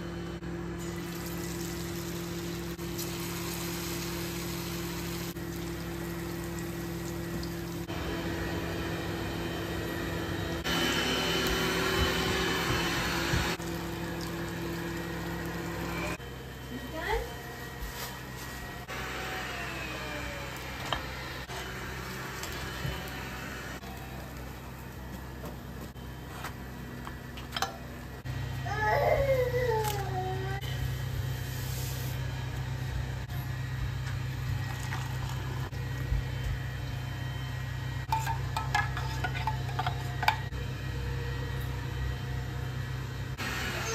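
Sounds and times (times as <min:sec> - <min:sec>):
low machine hum: 0:00.0 - 0:43.9
hot oil sizzling: 0:00.8 - 0:07.9, 0:13.6 - 0:16.1.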